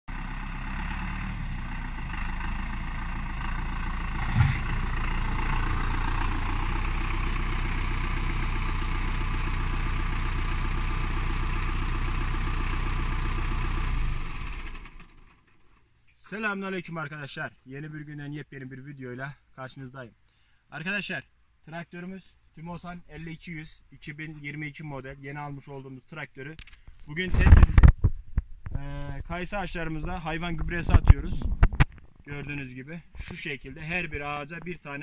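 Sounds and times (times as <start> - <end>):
tractor diesel engine running: 0.1 - 15.8.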